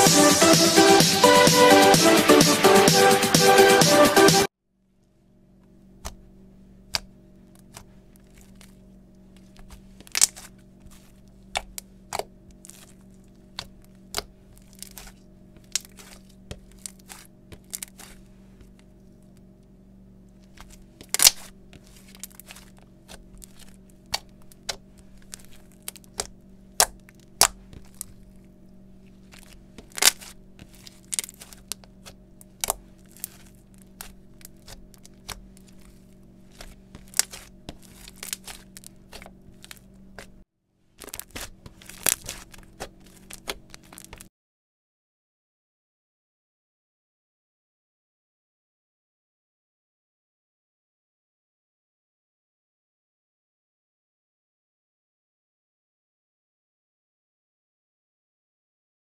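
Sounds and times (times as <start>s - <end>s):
faint low hum: 4.8s - 44.3s
slime popping and crackling: 9.4s - 18.2s, 20.5s - 28.4s, 29.2s - 40.3s, 41.0s - 44.3s.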